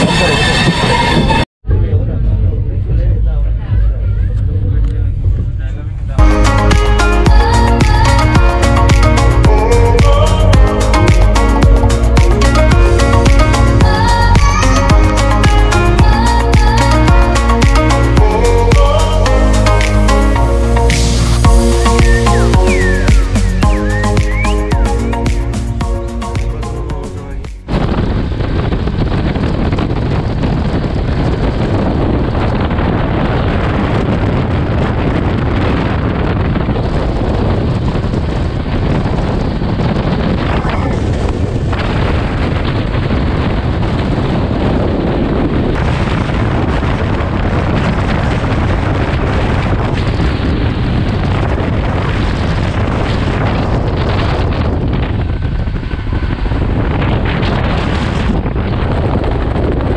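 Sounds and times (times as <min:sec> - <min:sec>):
train running noise: 0:00.0 - 0:06.2
wind rushing over microphone: 0:00.0 - 0:59.9.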